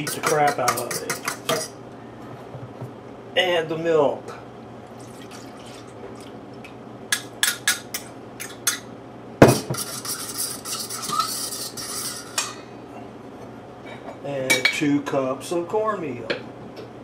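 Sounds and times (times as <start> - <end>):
stirring in pot: 0.0 - 1.8, 9.6 - 12.5.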